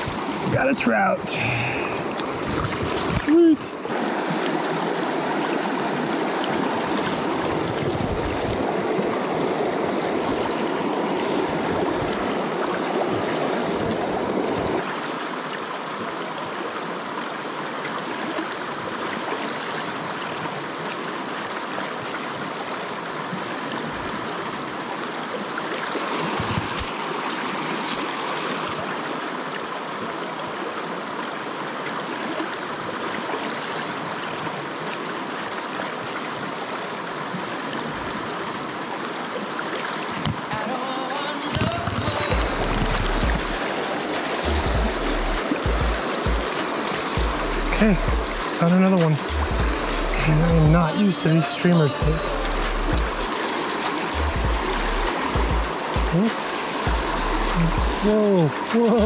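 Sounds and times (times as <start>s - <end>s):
stream water rushing: 0.0s - 59.0s
brief low thumps: 42.0s - 43.6s, 44.5s - 46.6s, 47.2s - 48.4s, 49.3s - 50.8s, 52.0s - 53.3s, 54.2s - 56.2s, 56.9s - 58.0s.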